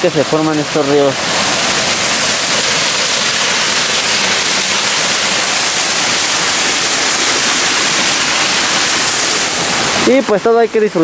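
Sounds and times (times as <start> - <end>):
stream rushing over rocks: 0.0 - 11.0.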